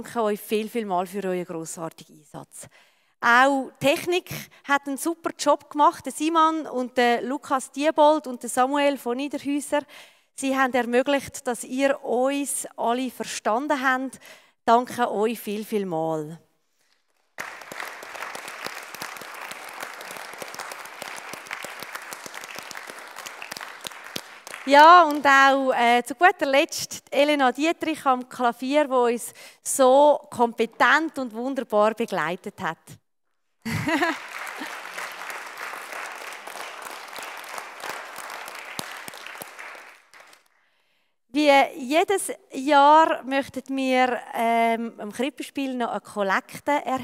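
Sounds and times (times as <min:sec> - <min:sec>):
audience applauding: 0:17.3 - 0:25.3, 0:33.8 - 0:40.5.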